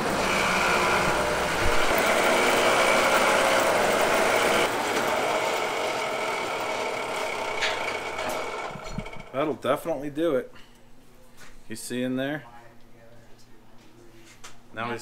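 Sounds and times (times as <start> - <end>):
metal lathe machining: 0.0 - 9.4
whining tones: 0.0 - 9.6.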